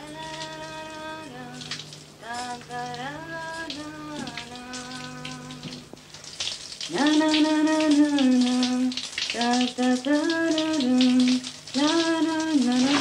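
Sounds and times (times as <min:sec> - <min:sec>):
woman singing long notes: 0:00.0 - 0:05.8.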